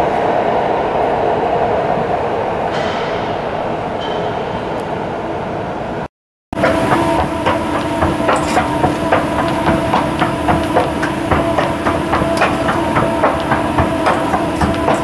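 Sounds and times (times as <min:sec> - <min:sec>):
clatter of escalator steps: 0:06.6 - 0:15.0
escalator motor hum: 0:06.6 - 0:15.0.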